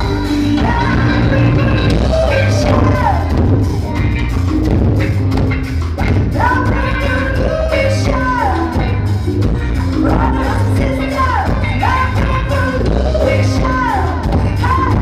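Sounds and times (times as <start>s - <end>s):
singer holding long notes: 0.0s - 4.6s
rock band playing: 0.0s - 15.0s.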